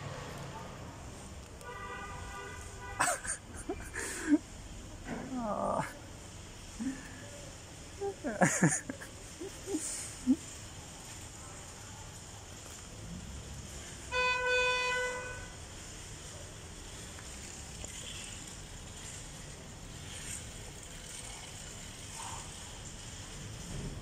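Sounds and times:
low street background: 0:00.0 - 0:24.0
vehicle horn honking: 0:01.6 - 0:03.3, 0:14.1 - 0:15.6.

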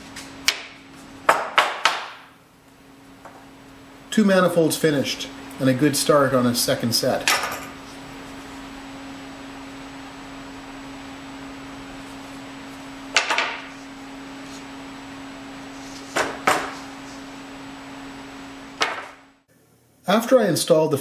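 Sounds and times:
steady hum: 0:00.0 - 0:21.0
wooden boards knocking together: 0:01.3 - 0:02.3, 0:13.1 - 0:13.7, 0:16.1 - 0:16.8, 0:18.8 - 0:19.2.

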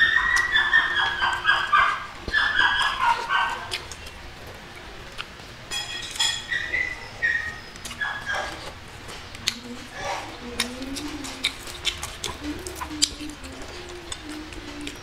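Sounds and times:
dog whining: 0:00.0 - 0:03.8, 0:06.3 - 0:08.8, 0:09.5 - 0:15.0
chewing clicks: 0:00.0 - 0:05.4, 0:06.8 - 0:15.0.

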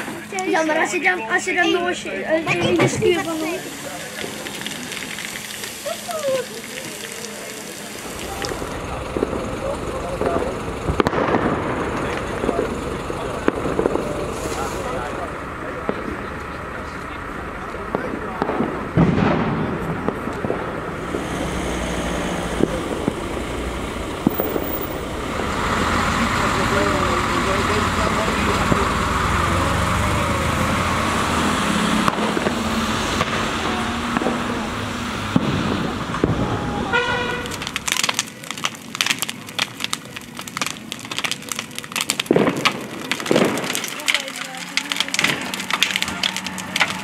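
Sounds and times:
traffic rumble: 0:00.0 - 0:47.0
wind: 0:00.0 - 0:47.0
firecracker bangs: 0:07.8 - 0:16.6, 0:17.7 - 0:29.6, 0:31.0 - 0:47.0.

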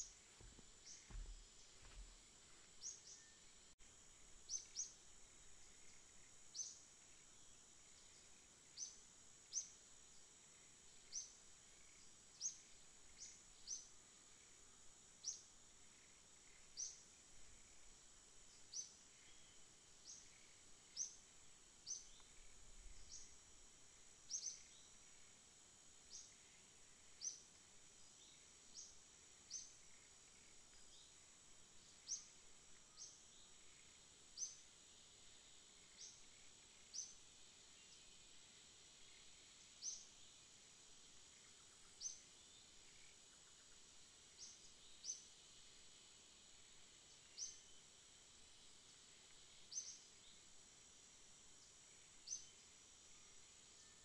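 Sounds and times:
small bird chirping: 0:00.0 - 0:02.2.

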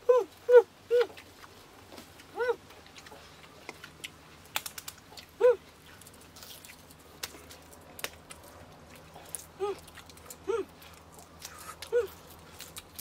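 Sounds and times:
eggshells cracking and peeling: 0:03.6 - 0:13.0.

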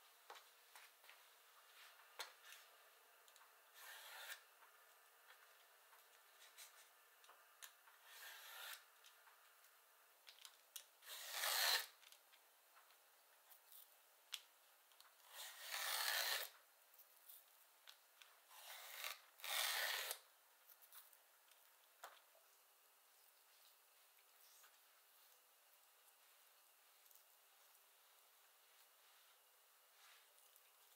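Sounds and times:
vegetable peeler scraping zucchini: 0:03.8 - 0:04.4, 0:08.0 - 0:08.9, 0:11.0 - 0:12.0, 0:15.3 - 0:16.5, 0:18.5 - 0:20.2.

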